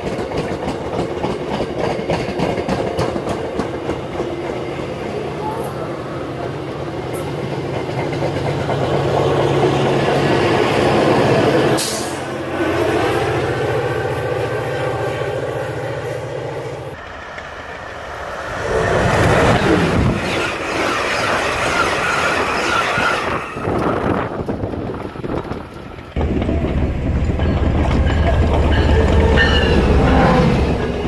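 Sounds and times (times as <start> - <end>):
passenger trains rumbling past: 0.0 - 31.0
train coaches rushing past: 0.0 - 31.0.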